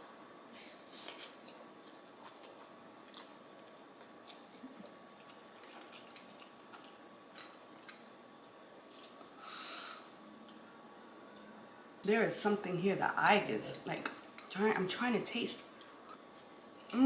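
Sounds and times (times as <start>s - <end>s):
quiet chewing of noodles: 0.8s - 8.0s, 8.8s - 9.4s.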